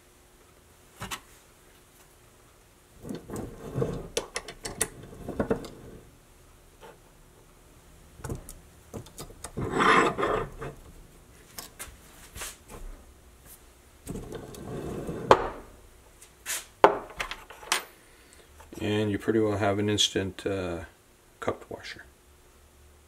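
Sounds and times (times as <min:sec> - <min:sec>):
metal rubbing and scraping: 0:03.0 - 0:06.1, 0:09.5 - 0:10.9.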